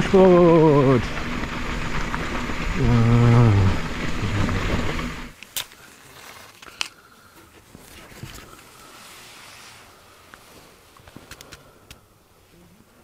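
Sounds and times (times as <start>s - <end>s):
bicycle jolting over dirt road: 0.0s - 6.9s.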